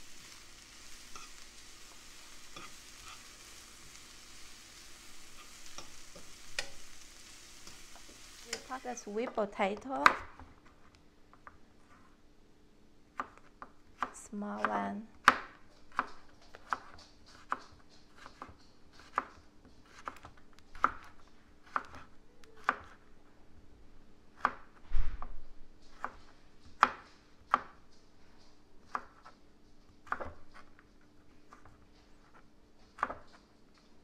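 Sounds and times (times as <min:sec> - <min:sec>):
knife chopping on cutting board: 0:15.2 - 0:23.0, 0:25.9 - 0:27.8, 0:28.9 - 0:29.4, 0:30.0 - 0:30.8, 0:33.0 - 0:33.4.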